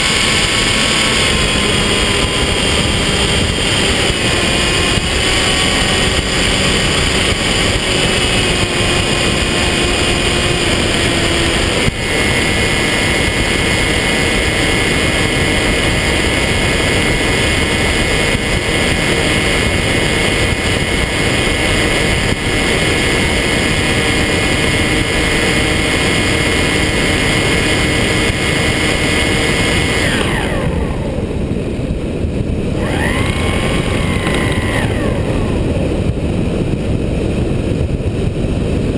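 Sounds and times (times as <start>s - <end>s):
electric propeller motor whine: 0.0s - 38.9s
wind rush: 0.0s - 38.9s.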